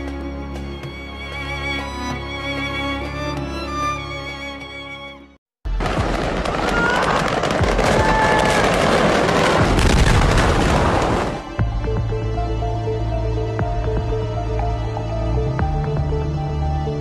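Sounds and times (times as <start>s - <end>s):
music: 0.0s - 6.9s, 11.0s - 17.0s
fireworks popping and crackling: 5.7s - 11.4s
fire roaring: 5.8s - 11.5s.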